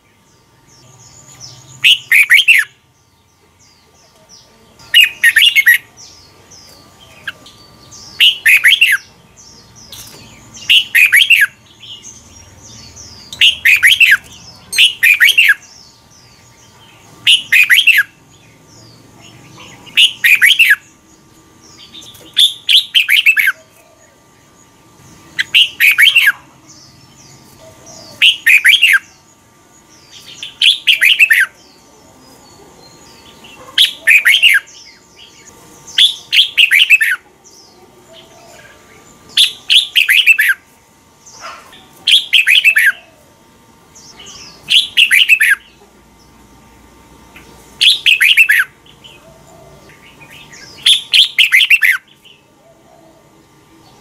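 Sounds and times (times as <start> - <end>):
bird singing whistled phrases: 1.8 - 2.8, 8.1 - 9.1, 10.7 - 11.6, 13.3 - 15.7, 17.3 - 18.2, 20.0 - 20.8, 25.4 - 26.4, 28.0 - 29.1, 33.8 - 34.8, 36.0 - 37.2, 42.1 - 43.0, 44.7 - 45.7, 47.8 - 48.7, 50.5 - 52.1.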